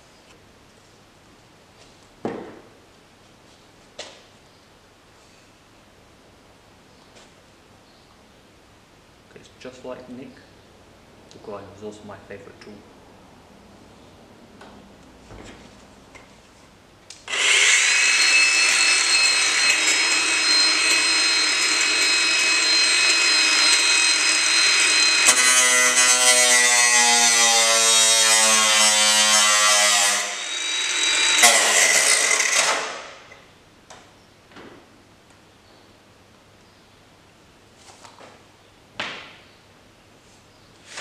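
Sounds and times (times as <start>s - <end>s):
angle grinder whining and cutting metal: 17.2s - 33.5s.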